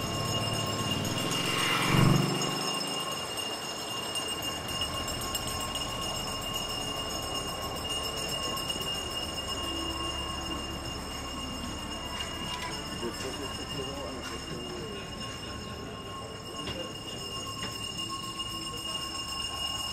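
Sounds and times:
traffic rumble: 0.0 - 3.3
vehicle passing: 0.0 - 3.3
high-pitched tone: 0.0 - 3.4.

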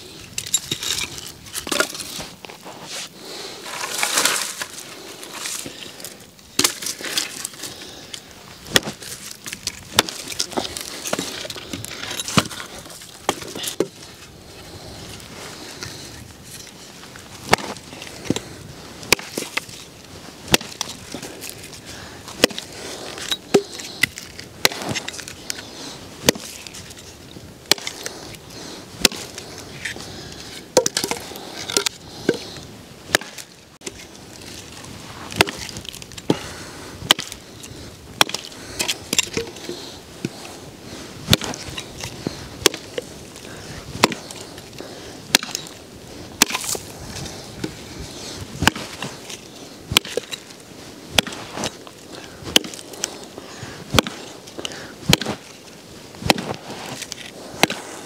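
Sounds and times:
firewood being chopped: 6.5 - 7.4, 8.7 - 14.0, 17.5 - 19.7, 20.5 - 21.7, 22.3 - 25.3, 26.2 - 26.6, 27.6 - 28.2, 29.0 - 29.6, 30.7 - 32.5, 33.1 - 34.0, 35.3 - 37.4, 38.2 - 40.4, 41.3 - 43.1, 44.0 - 44.6, 45.3 - 45.8, 46.4 - 46.9, 48.6 - 49.2, 49.9 - 50.5, 51.1 - 53.1, 53.9 - 55.5, 56.2 - 57.9.

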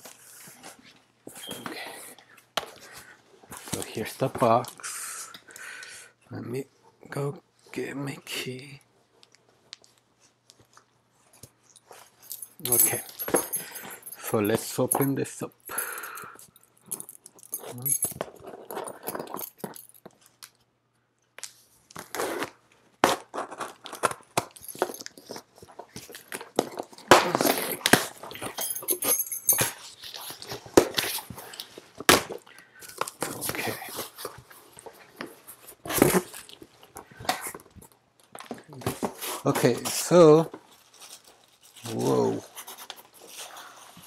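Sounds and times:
packing tape cut and ripped: 21.9 - 25.2.

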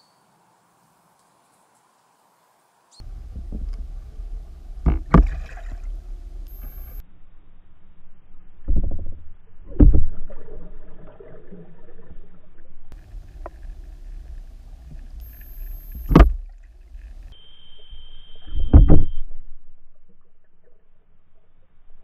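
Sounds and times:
heavy underwater thumps: 3.0 - 7.0, 15.9 - 16.6
low underwater rumble: 3.0 - 22.0
lower steady tone: 3.0 - 22.0
thin high tone: 6.4 - 7.1, 15.2 - 16.2.

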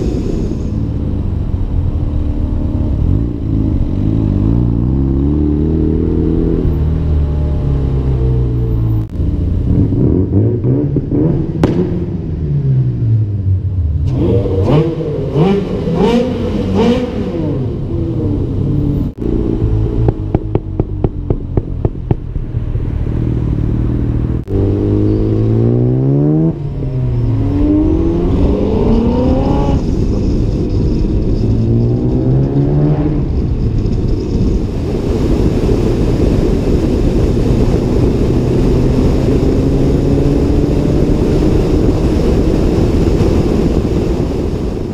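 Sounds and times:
wind and road noise: 0.0 - 44.9
sports car engine revving: 14.0 - 22.3
exhaust pops: 19.2 - 22.5.

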